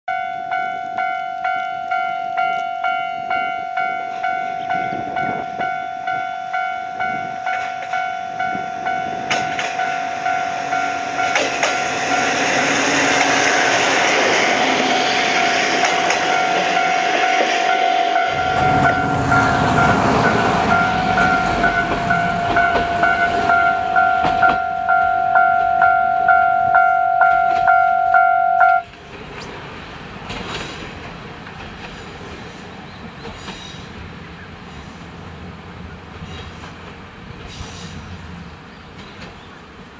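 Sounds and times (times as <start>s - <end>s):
level-crossing bell ringing: 0.1s - 12.5s, 14.8s - 28.8s
train wheels clattering: 7.2s - 26.0s, 28.9s - 34.0s
diesel engines rumbling: 7.6s - 39.0s.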